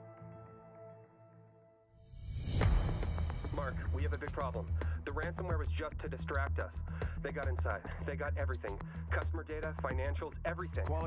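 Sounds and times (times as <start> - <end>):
rising whoosh: 2.1 - 3.5
soft film score tones: 2.3 - 11.0.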